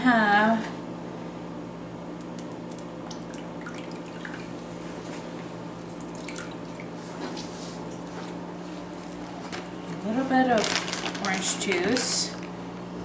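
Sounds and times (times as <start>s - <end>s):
steady low hum: 0.0s - 13.0s
juice dripping and spattering: 2.2s - 4.6s, 5.8s - 7.0s.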